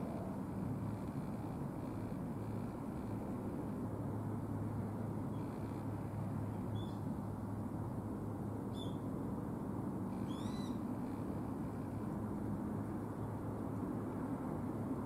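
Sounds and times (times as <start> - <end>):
bird calling: 10.2 - 10.9.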